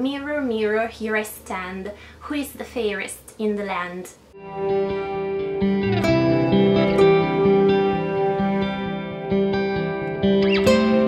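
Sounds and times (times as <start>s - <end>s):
plucked guitar melody: 4.4s - 11.0s.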